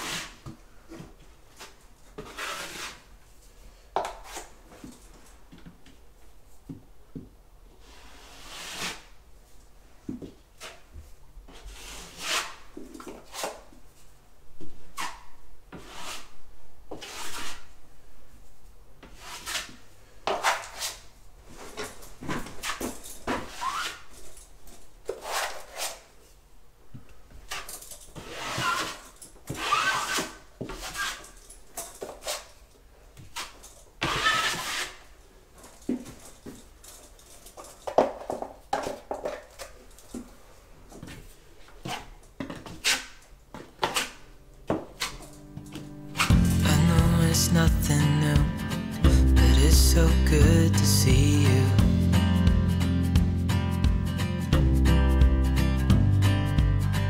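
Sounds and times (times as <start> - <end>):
drywall knife scraping compound: 0.0 - 0.6, 1.5 - 3.1, 4.0 - 4.6, 7.8 - 9.1, 10.6 - 13.7, 14.8 - 17.8, 19.0 - 24.1, 25.1 - 26.2, 27.5 - 31.4, 33.3 - 35.1, 41.8 - 43.2.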